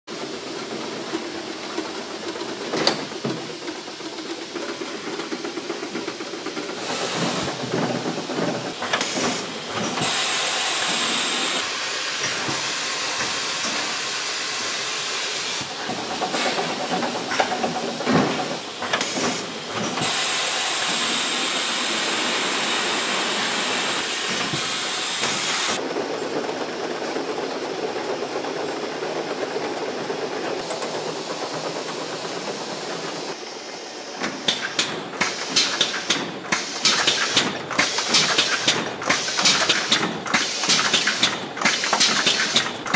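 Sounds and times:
conveyor rattle: 0.1 - 11.5, 15.6 - 42.9
hissing machine noise: 0.1 - 42.9
sharp clicks and clatters: 0.2 - 10.2, 25.2 - 33.4, 34.2 - 42.9.

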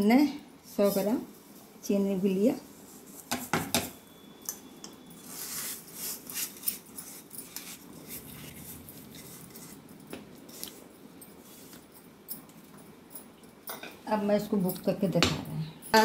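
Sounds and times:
sugar rustling and scraping: 2.5 - 3.6, 5.2 - 12.8.

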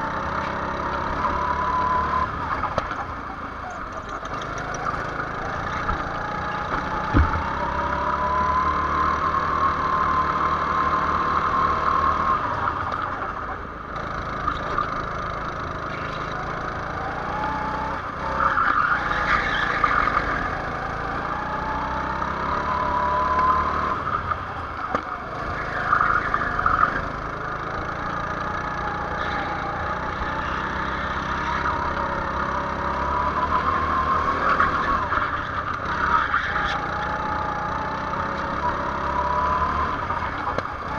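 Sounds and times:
go-kart engine revving: 0.0 - 40.9
short thump: 6.7 - 7.4.

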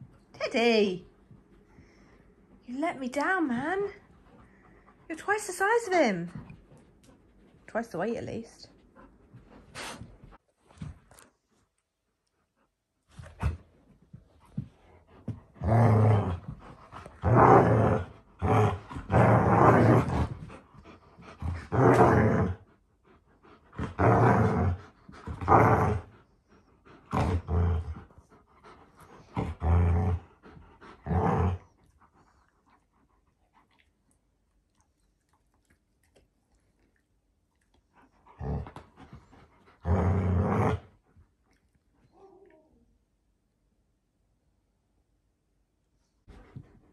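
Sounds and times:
dogs play-growling: 14.4 - 33.9, 37.7 - 41.2.

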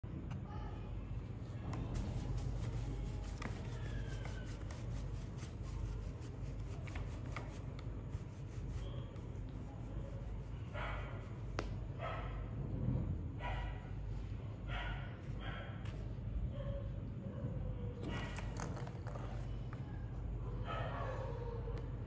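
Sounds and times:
steady low hum: 0.0 - 18.6.

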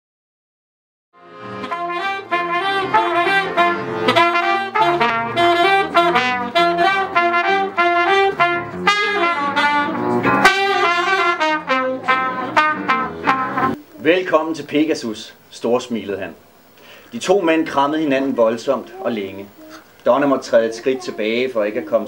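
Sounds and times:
accordion: 1.2 - 13.8
live jazz band: 1.2 - 13.8
trumpet: 1.2 - 13.8
saxophone: 1.2 - 13.9.

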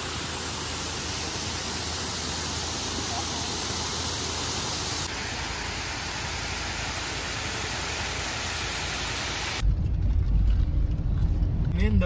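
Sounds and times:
rain and falling water: 0.0 - 9.6
car engine and road noise: 0.0 - 12.0.

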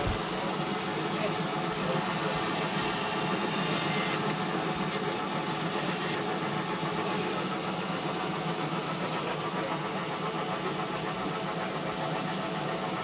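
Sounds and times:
drill press motor hum: 0.0 - 13.0
drill bit grinding into bone: 1.6 - 5.0, 5.6 - 6.3.

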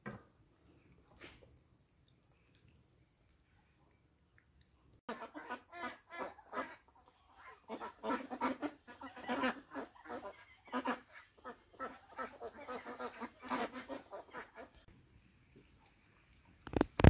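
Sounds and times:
ducks quacking: 5.1 - 14.9.

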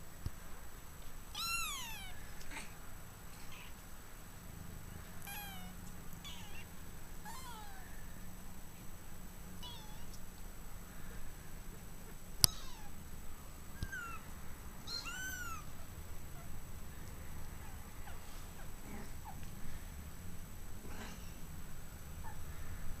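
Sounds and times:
kittens mewing: 1.4 - 2.8, 3.4 - 3.8, 5.2 - 8.1, 9.6 - 10.2, 12.4 - 13.0, 13.8 - 16.6.

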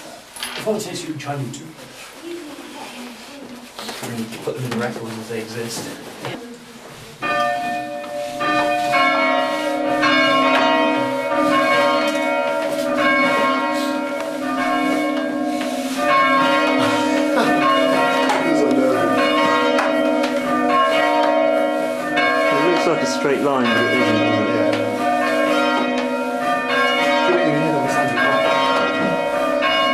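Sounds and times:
church bells ringing: 7.2 - 29.9.

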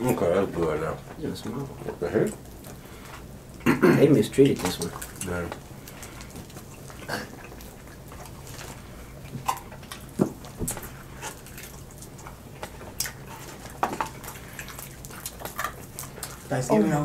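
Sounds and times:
people chewing chicken wings: 2.2 - 16.8.

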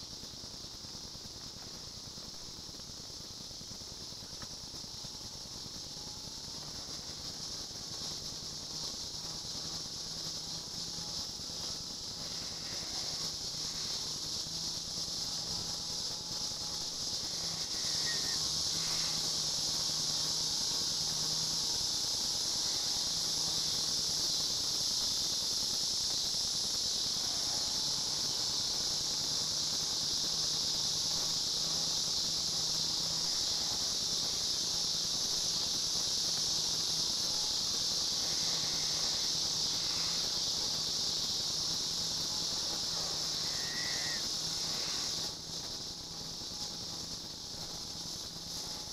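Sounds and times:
high-pitched insect chorus: 0.0 - 48.9.

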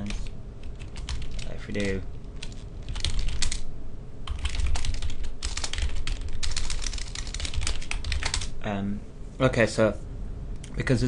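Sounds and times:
typing on computer keyboard: 0.0 - 3.6, 4.3 - 8.5.

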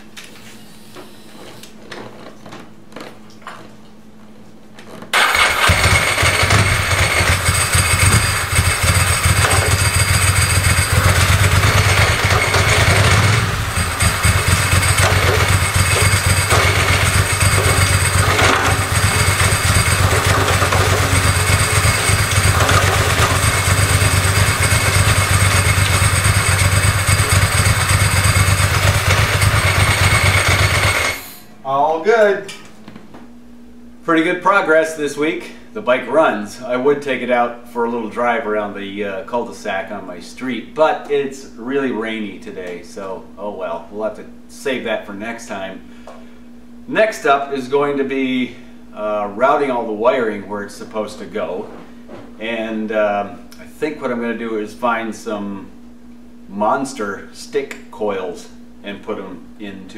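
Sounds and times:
motorcycle engine running: 5.2 - 31.4.

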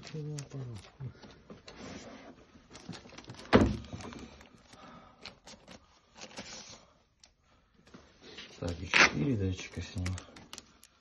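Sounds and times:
rustling of sheet and foam: 0.0 - 7.0.

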